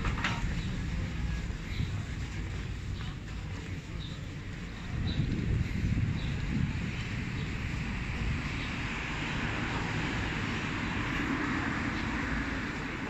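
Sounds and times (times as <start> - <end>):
passing vehicle rushing: 5.8 - 13.0.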